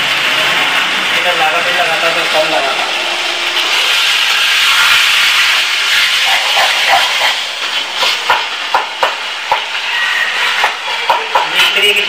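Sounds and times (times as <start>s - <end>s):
food sizzling in hot oil: 0.0s - 12.0s
spatula scraping a pan: 3.6s - 8.4s.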